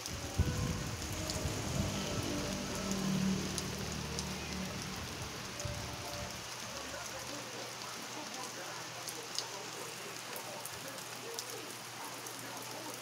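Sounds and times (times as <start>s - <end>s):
low rumble: 0.0s - 6.9s
rain on leaves and concrete: 0.0s - 13.0s.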